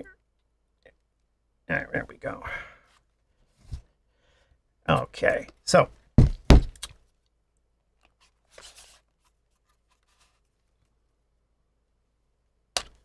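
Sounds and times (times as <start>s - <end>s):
soft plastic scrape: 8.2s - 10.7s.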